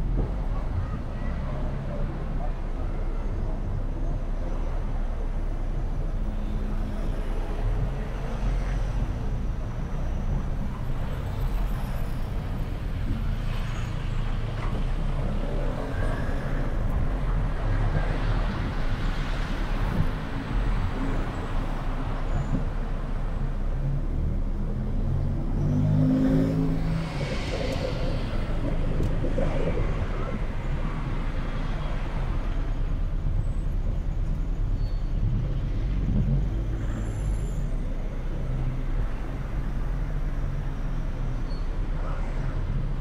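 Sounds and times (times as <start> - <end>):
car engine rumble: 0.0 - 43.0
road noise: 0.0 - 43.0.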